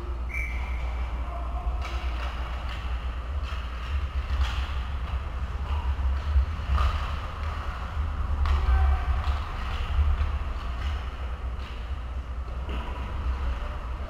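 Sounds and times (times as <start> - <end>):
low rumble: 0.0 - 14.0
hockey sticks and puck clacking: 1.6 - 14.0.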